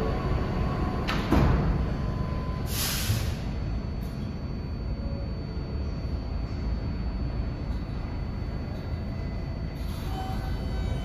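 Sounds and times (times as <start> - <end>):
subway doors sliding shut: 0.0 - 4.3, 8.7 - 11.0
train humming: 0.0 - 11.0.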